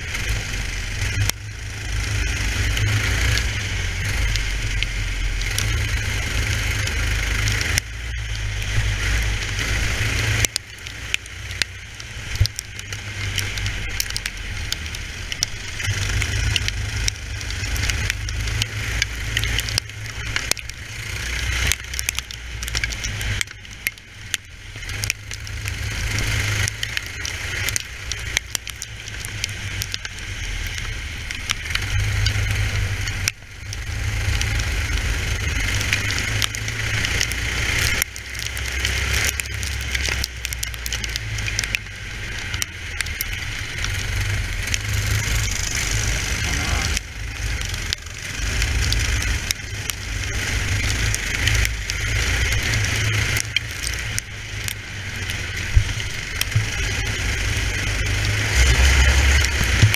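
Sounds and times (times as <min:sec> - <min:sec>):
clicks and crackles: 0:00.0 - 0:59.9
kart engine running hard: 0:00.0 - 0:59.9
heavy low rumble: 0:24.6 - 0:59.9.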